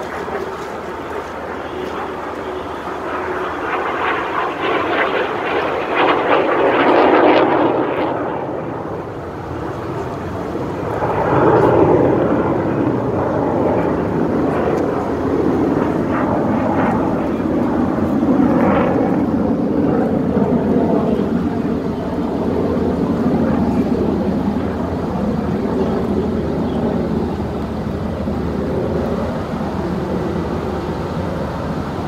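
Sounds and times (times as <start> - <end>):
jet engine roaring: 0.0 - 32.0.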